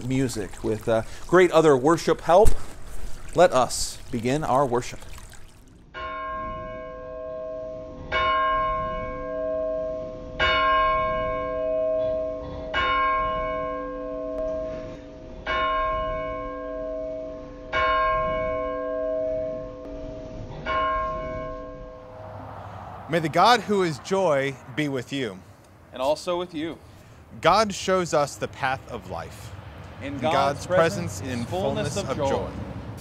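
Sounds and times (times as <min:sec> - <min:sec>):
church bell tolling: 0:06.0 - 0:19.9, 0:20.6 - 0:22.2.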